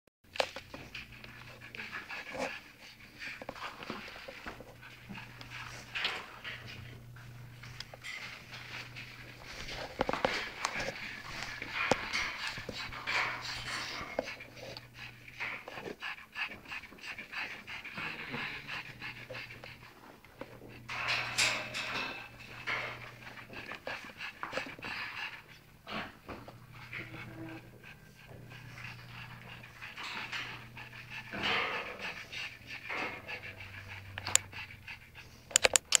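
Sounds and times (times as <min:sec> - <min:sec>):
dog panting: 0:00.4 - 0:36.0
sharp clicks: 0:35.5 - 0:36.0.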